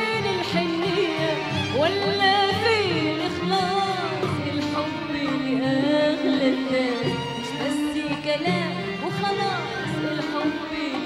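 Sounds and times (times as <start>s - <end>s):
woman singing pop song: 0.0s - 11.0s.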